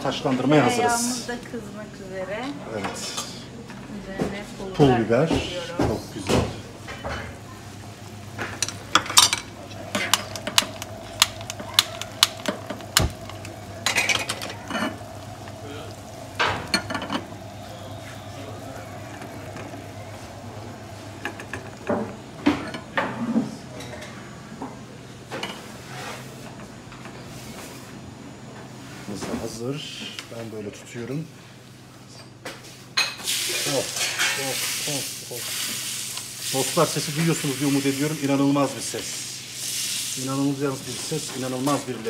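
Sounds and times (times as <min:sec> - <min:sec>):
butter sizzling in a saucepan: 0:07.4 - 0:22.3, 0:33.2 - 0:42.0.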